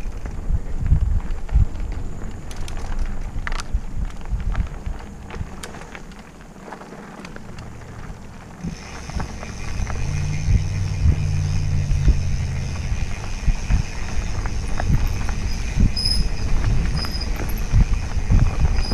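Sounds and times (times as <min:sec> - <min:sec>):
wind on microphone: 0:00.0 - 0:06.1, 0:08.0 - 0:18.9
mountain bike rolling on dirt: 0:00.0 - 0:18.9
steady buzz: 0:08.4 - 0:18.9.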